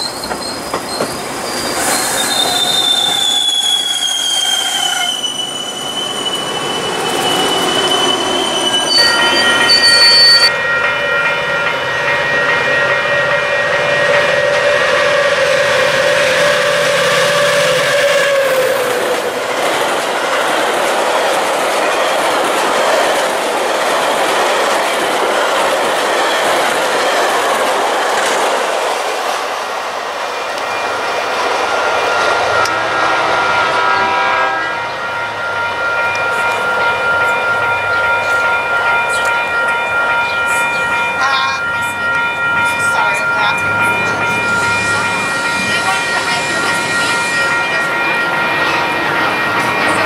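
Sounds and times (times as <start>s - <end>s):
train coaches rumbling past: 0.0s - 50.0s
steady high ringing tones: 5.8s - 15.2s, 34.7s - 50.0s
train horn chord: 12.8s - 19.4s, 32.2s - 36.2s.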